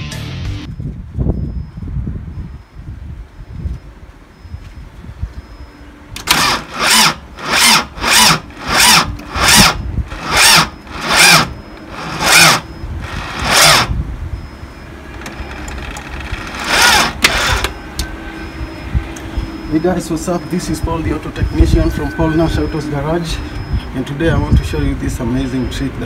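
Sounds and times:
starter motor cranking slowly: 6.2 - 14.0, 15.1 - 17.8.

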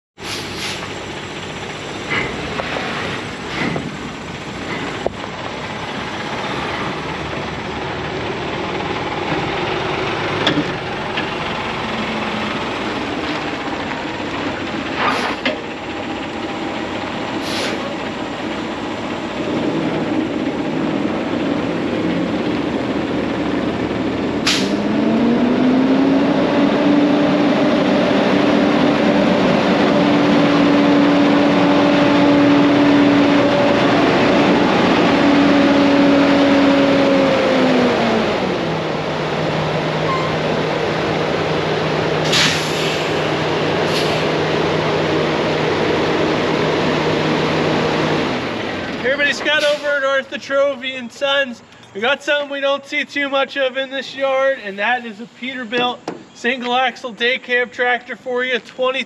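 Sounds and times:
air hissing: 0.2 - 1.0, 17.4 - 18.0, 24.4 - 24.8, 42.2 - 44.4
diesel truck engine idling: 0.2 - 58.8
hum rising in pitch: 19.2 - 42.2.

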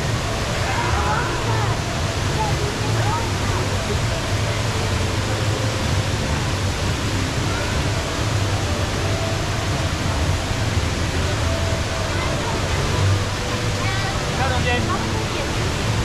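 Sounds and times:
indoor waterfall rushing: 0.0 - 16.0.

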